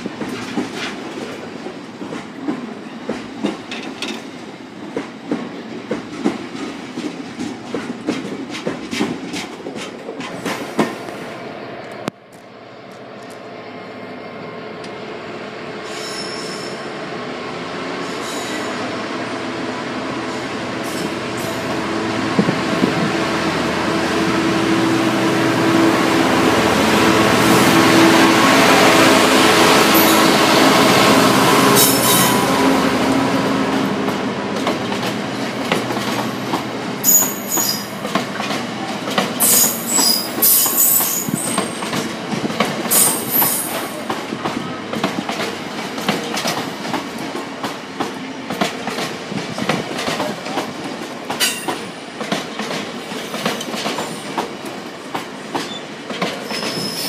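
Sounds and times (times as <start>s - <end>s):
diesel locomotive engine drone: 10.2s - 53.9s
high wheel squeals: 15.8s - 16.8s, 37.0s - 37.9s, 39.4s - 41.8s, 55.7s - 57.0s.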